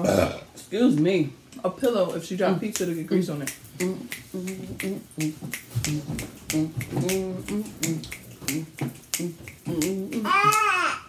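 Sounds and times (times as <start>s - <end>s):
fingers snapping: 2.8s - 10.7s
person humming: 3.7s - 11.0s.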